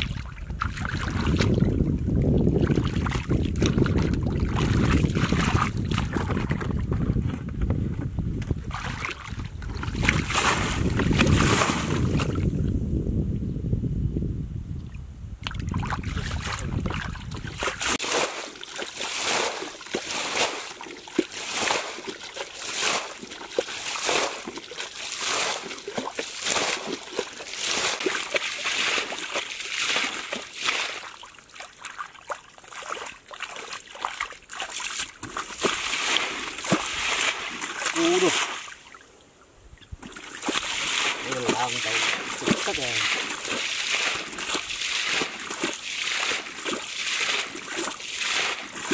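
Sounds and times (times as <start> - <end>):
wind rumble on microphone: 0.0 - 18.0
water splashing from a bowl: 2.6 - 7.4, 15.4 - 39.0, 40.0 - 48.9.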